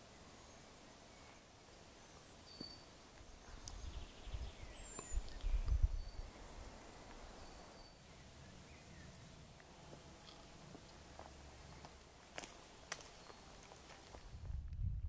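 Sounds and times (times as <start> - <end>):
birds chirping: 0.0 - 14.3
low rumble: 14.4 - 15.0.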